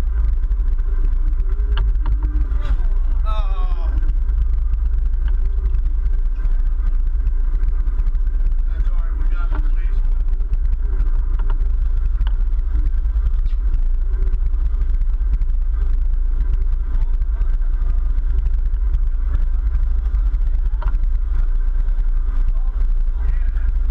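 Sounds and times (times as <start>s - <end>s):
boat engines rumbling: 0.0s - 23.9s.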